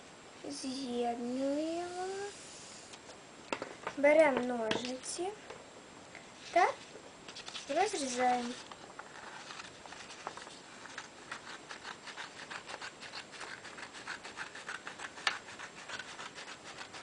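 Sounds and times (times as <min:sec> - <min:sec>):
scissors cutting paper: 0:07.4 - 0:17.0.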